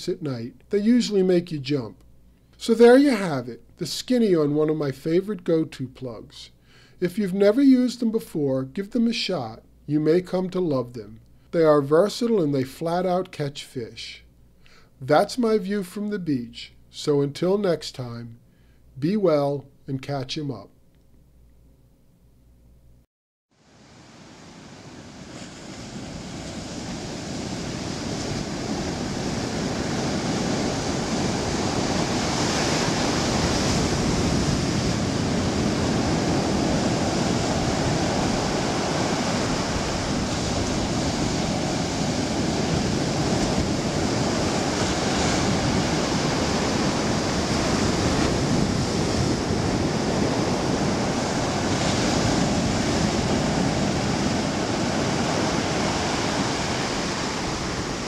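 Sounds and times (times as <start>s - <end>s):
ocean waves breaking on beach: 23.6s - 58.0s.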